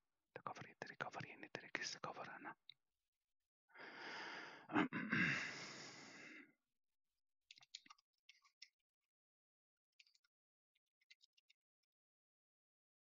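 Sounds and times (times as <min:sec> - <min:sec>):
person sighing: 0:03.8 - 0:06.4.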